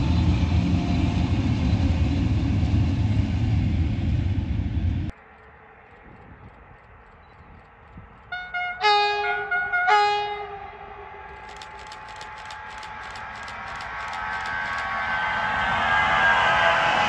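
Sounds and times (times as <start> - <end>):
diesel locomotive engine: 0.0 - 17.0
locomotive horn blasts: 8.3 - 11.3.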